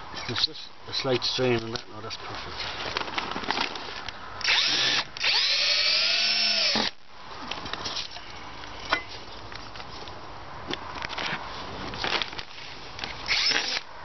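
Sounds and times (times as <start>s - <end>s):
cordless drill driving screw: 4.4s - 7.0s, 13.3s - 13.9s.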